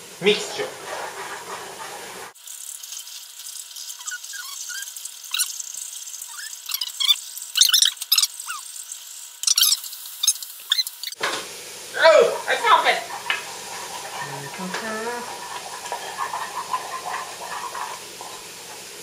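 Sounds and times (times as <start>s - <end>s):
spoon scraping saucepan: 12.1s - 19.0s.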